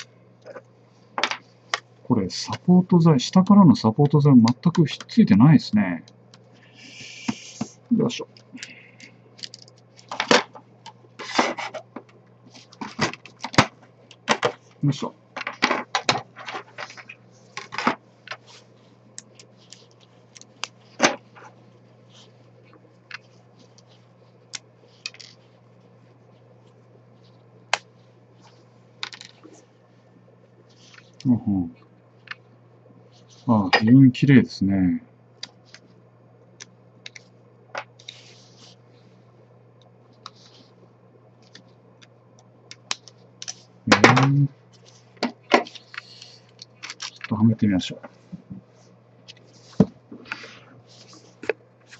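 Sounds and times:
low steady hum: 0.0 - 51.9.

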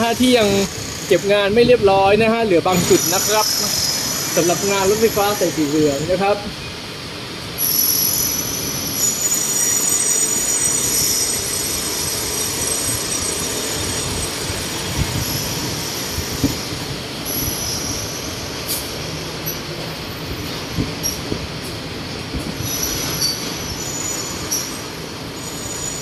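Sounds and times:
high-pitched whine: 0.0 - 6.8, 7.5 - 19.6
monorail train rushing past: 0.0 - 26.0.

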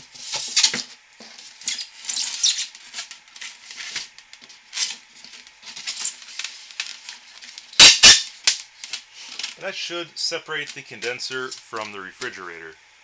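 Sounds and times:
foam scraping and rubbing on coil: 0.0 - 8.2.

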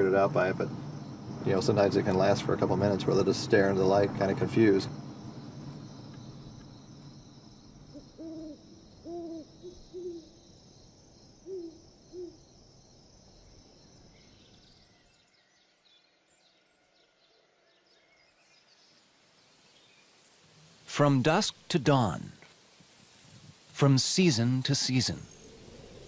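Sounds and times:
high insect drone: 0.0 - 15.2, 18.4 - 26.0
owl hooting: 7.9 - 10.4, 11.4 - 12.5.

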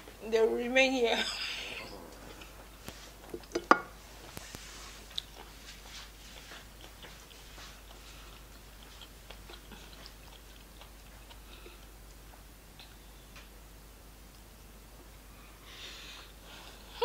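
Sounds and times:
faint chewing: 1.4 - 13.5.

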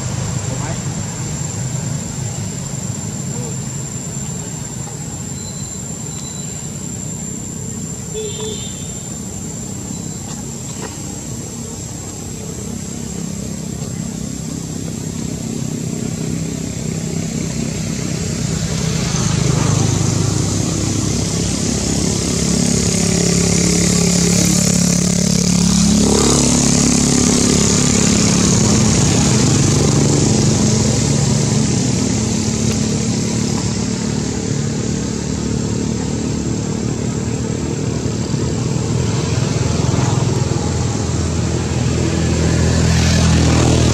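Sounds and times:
motorcycle engine running: 0.0 - 43.9
thin high-pitched whine: 2.6 - 13.3.

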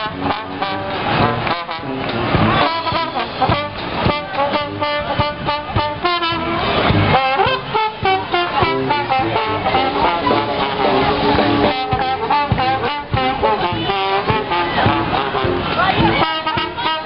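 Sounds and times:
horns playing held notes: 0.0 - 17.0
steady drum beat: 0.0 - 17.0.

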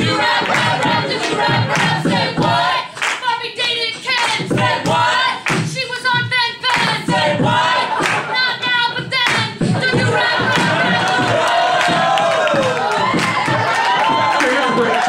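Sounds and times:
people singing a chorus: 0.0 - 3.0, 4.3 - 5.4, 6.8 - 8.4, 9.6 - 13.2
audience clapping along: 0.0 - 15.0
beatboxed beat: 0.0 - 15.0.

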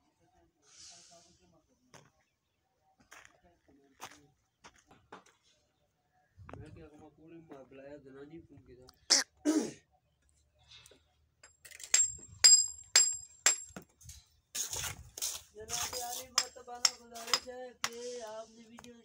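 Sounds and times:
sharp metallic clinks: 11.4 - 13.7.

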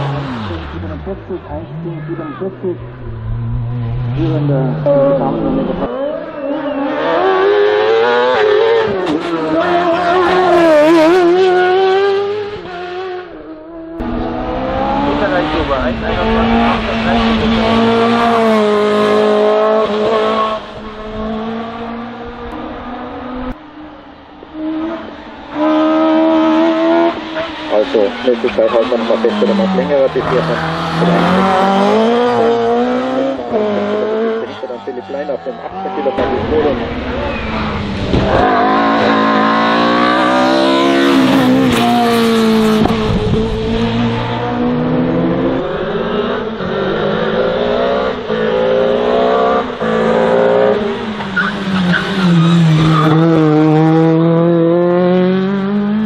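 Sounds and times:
racing car engine at high revs: 0.0 - 56.0.

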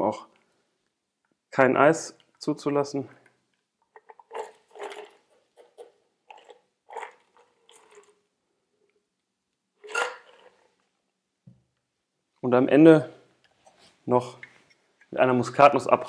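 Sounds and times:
cocktail straining through strainer: 3.9 - 8.2, 9.8 - 10.8.

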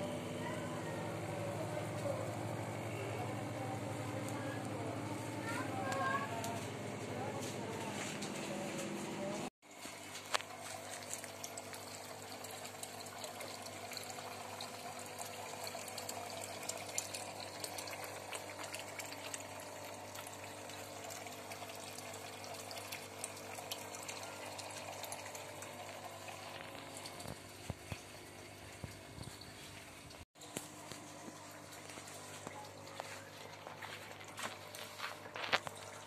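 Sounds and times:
faint pump hum: 0.0 - 36.0
water splashing into pond: 9.7 - 36.0.

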